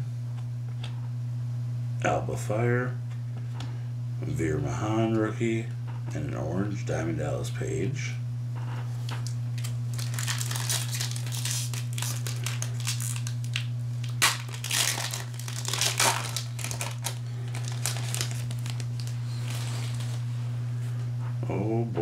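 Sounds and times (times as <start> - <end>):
low hum: 0.0 - 22.0
foil wrapper crinkling and tearing: 9.0 - 20.2.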